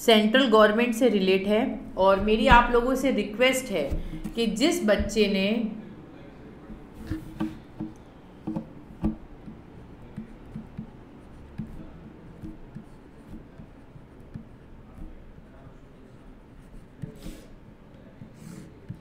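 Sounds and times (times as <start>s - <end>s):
stylus tapping on a tablet: 6.7s - 15.2s.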